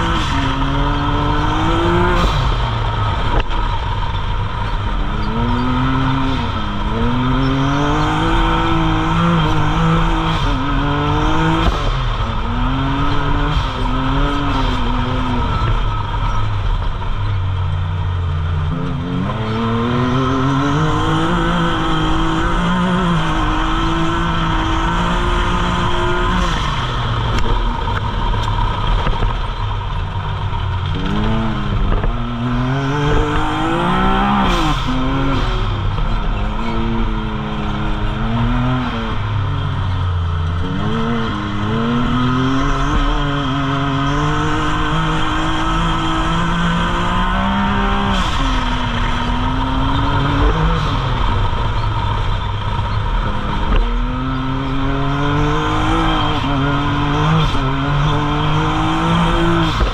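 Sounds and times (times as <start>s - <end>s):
engine revving hard: 0.0s - 2.8s, 5.0s - 15.9s, 18.7s - 27.5s, 30.8s - 59.9s.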